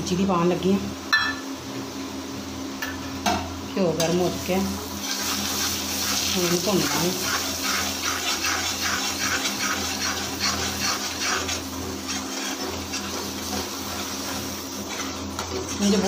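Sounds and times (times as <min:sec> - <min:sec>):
semolina sizzling in a frying pan: 0:01.9 - 0:16.0
spatula stirring in a pan: 0:04.8 - 0:16.0.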